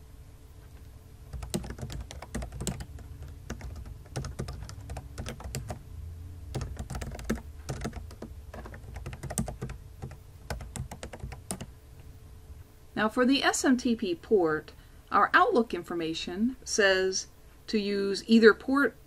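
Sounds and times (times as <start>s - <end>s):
low steady hum: 0.0s - 19.0s
keyboard typing clicks: 1.3s - 5.8s, 6.5s - 11.7s.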